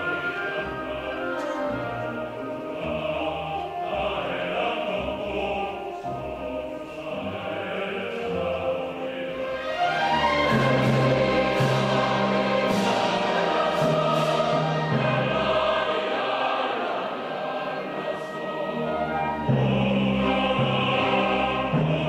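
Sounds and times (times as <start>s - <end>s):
choral music: 0.0s - 22.0s.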